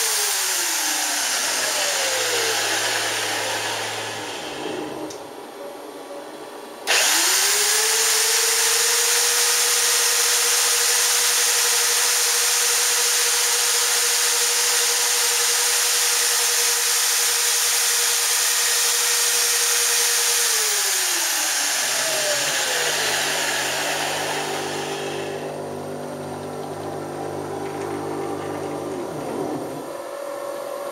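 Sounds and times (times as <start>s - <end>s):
loud hiss: 0.0s - 5.1s, 20.9s - 25.7s
router spindle motor whine: 0.0s - 5.2s, 6.9s - 30.9s
low buzzing hum: 22.3s - 30.9s.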